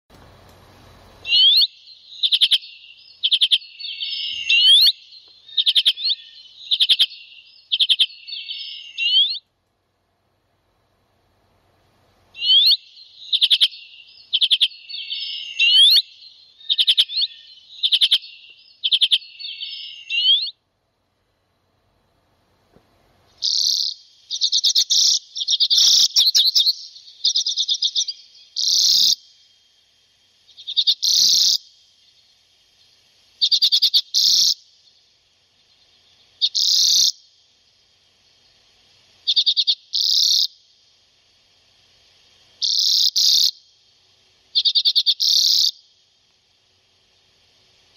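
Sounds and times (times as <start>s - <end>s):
birds chattering trills: 12.4s - 20.6s, 23.3s - 29.4s, 30.4s - 37.2s.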